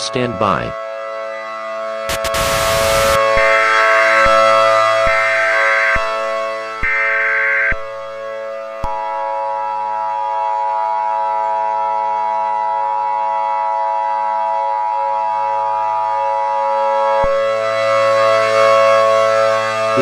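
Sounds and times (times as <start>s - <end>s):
electronic siren-like drone: 0.0s - 20.0s.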